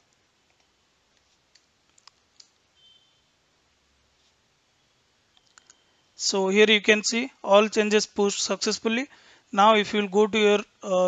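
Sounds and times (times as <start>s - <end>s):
computer mouse and keyboard clicks: 0.4s - 2.6s, 5.4s - 5.8s.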